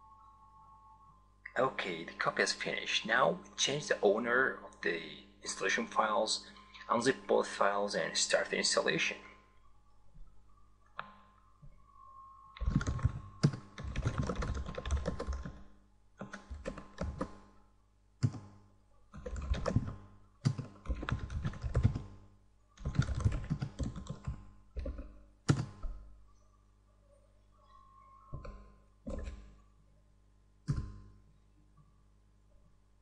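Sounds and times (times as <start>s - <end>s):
typing on computer keyboard: 12.6s - 17.4s, 19.1s - 22.1s, 22.8s - 26.0s.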